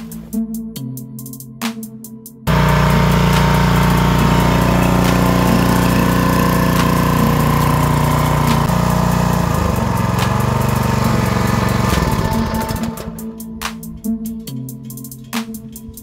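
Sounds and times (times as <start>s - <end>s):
pressure washer petrol engine running: 2.5s - 13.4s.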